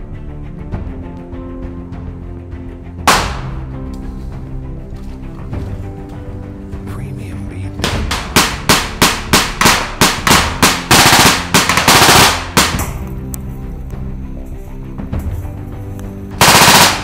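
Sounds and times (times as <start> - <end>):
background music: 0.0 - 17.0
rifle gunfire: 3.1 - 3.7, 7.8 - 13.0, 16.4 - 17.0
automatic gunfire burst: 8.1 - 12.8, 16.4 - 17.0.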